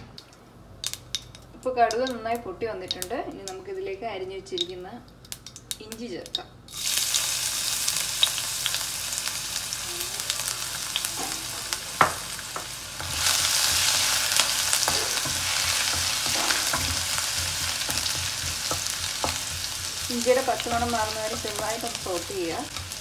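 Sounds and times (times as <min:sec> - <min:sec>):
ginger sizzling in hot oil: 0:06.7 - 0:23.0
wooden spatula stirring: 0:13.0 - 0:23.0.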